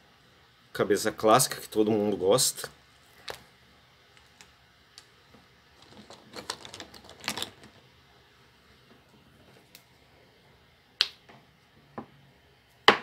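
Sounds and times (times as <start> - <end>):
plastic toy parts clicking: 5.8 - 7.8.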